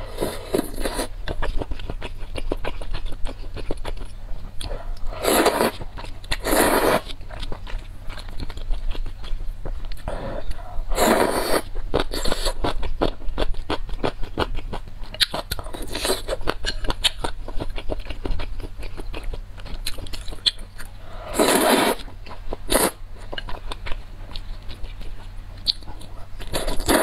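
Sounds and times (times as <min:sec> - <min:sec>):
slurping noodles: 0:00.0 - 0:01.1, 0:05.1 - 0:07.1, 0:10.1 - 0:12.6, 0:21.2 - 0:22.0, 0:22.7 - 0:23.0, 0:26.5 - 0:27.0
chewing with small clicks: 0:01.2 - 0:05.2, 0:07.0 - 0:10.7, 0:11.7 - 0:21.0, 0:22.0 - 0:27.0.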